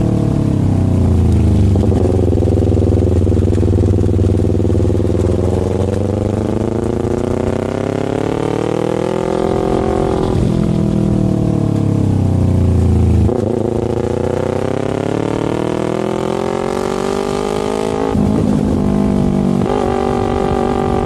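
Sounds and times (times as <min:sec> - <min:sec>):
motorcycle engine running: 0:00.0 - 0:21.0.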